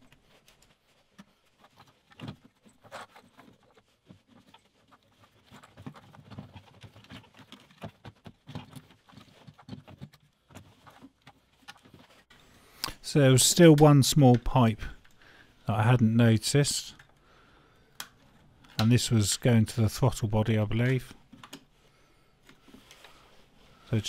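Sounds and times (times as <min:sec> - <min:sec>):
clicks and taps of plastic parts: 0:21.3 - 0:21.7.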